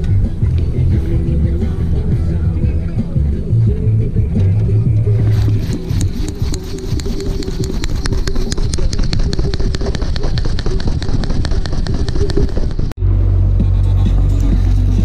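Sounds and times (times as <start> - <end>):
dense low rumble: 0.0 - 15.0
music with fast ticking beat: 0.0 - 15.0.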